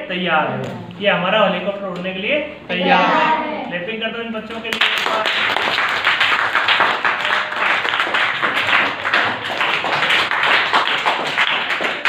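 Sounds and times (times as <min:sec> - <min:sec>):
group of people applauding: 0:04.7 - 0:12.0.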